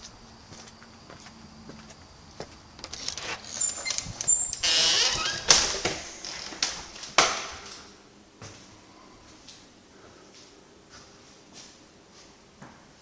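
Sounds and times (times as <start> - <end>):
door squeaking: 2.9 - 7.0
door clacking shut and latching: 3.2 - 7.6.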